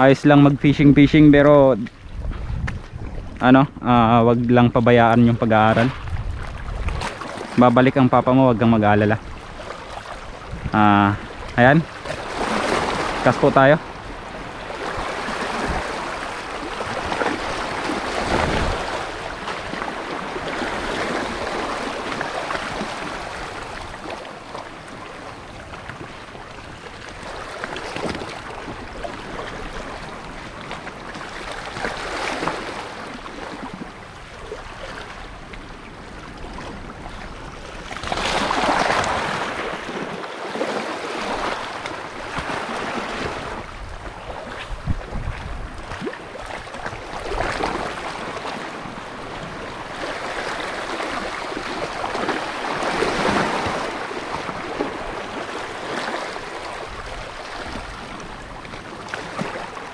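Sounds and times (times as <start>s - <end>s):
wind on microphone: 0.0s - 24.1s, 41.2s - 59.8s
small waves lapping: 0.0s - 59.9s.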